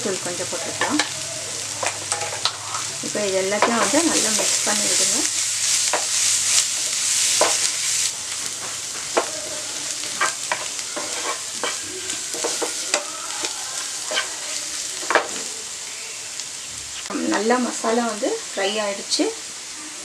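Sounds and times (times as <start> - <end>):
onions sizzling in a frying pan: 0.0 - 20.0
spatula scraping and tapping pan: 3.6 - 4.7, 5.8 - 15.4.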